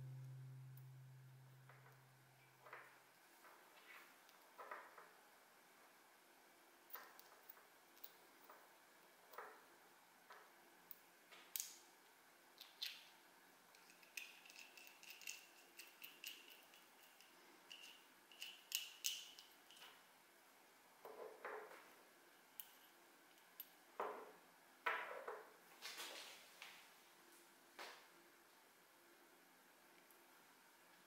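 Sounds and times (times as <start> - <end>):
faint metallic ringing: 0.0 - 3.1
small metal parts clicking: 13.7 - 19.9.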